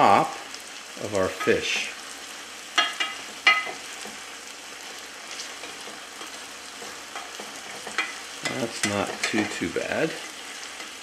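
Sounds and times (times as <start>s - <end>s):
sauce sizzling in a frying pan: 0.0s - 11.0s
spoon clinking against pan: 2.8s - 3.8s, 7.1s - 9.6s.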